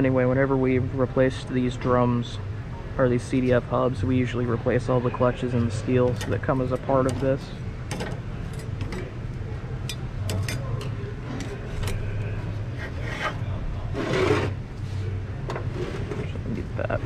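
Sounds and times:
metal plates scraping on workbench: 0:12.8 - 0:14.6, 0:15.5 - 0:16.4.

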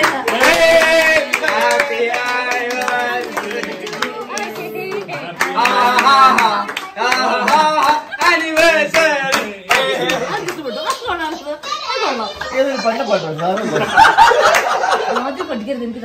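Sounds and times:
people singing: 0:00.0 - 0:10.5
people clapping: 0:00.0 - 0:11.4, 0:13.4 - 0:15.0
people talking: 0:02.8 - 0:16.0.

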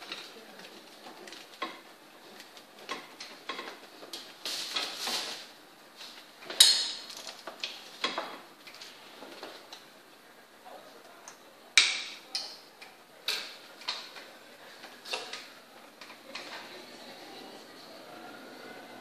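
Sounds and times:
scraping rustle: 0:03.8 - 0:06.3.

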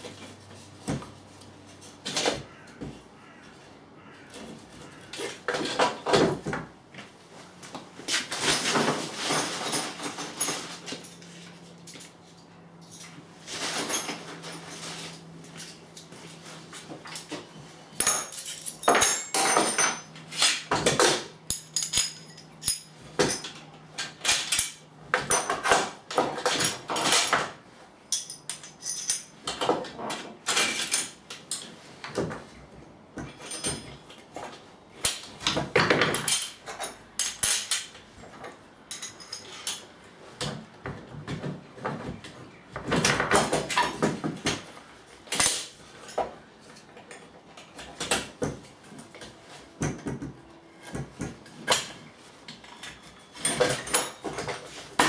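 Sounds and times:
metal parts and tools clinking: 0:08.1 - 0:16.1, 0:16.9 - 0:31.7, 0:33.2 - 0:40.0, 0:49.0 - 0:55.0.

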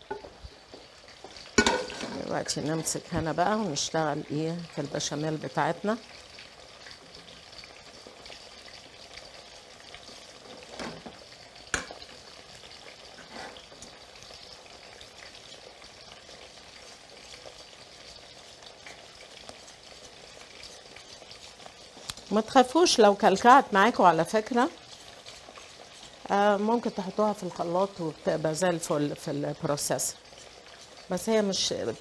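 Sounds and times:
vegetable slices sizzling in oil: 0:00.0 - 0:32.0
whisk stirring sauce in a pot: 0:15.0 - 0:28.0, 0:30.2 - 0:31.2.

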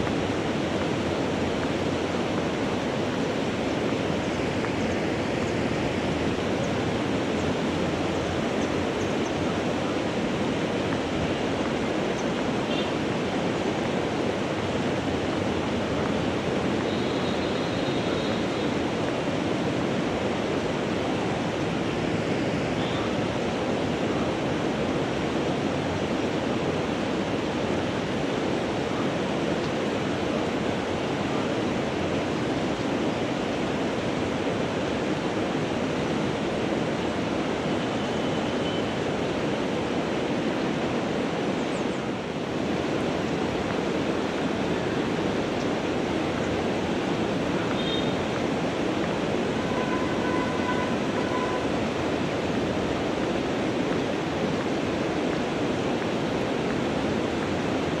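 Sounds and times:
river water rushing: 0:00.0 - 0:58.0.

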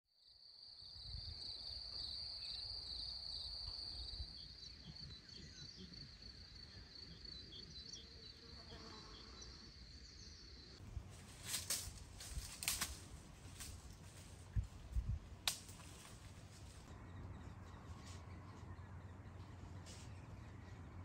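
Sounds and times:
bird chirping: 0:00.8 - 0:10.8, 0:16.9 - 0:21.0.

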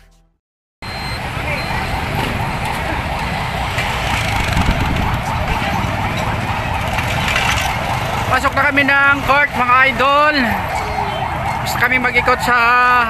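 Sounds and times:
siren yelping: 0:00.8 - 0:13.0
street noise: 0:00.8 - 0:13.0.

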